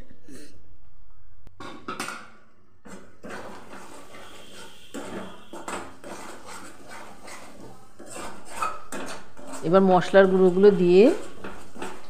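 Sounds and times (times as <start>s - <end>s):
metal spatula scraping metal pan: 2.8s - 12.0s.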